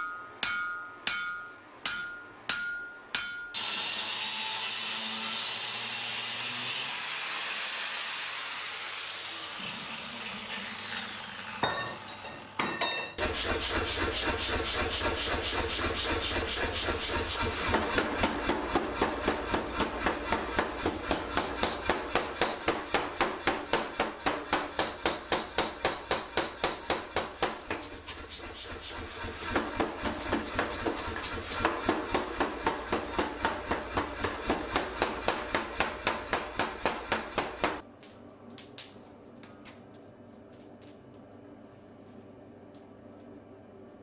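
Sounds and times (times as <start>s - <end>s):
power hammer striking hot metal: 0.0s - 3.7s, 11.2s - 37.8s.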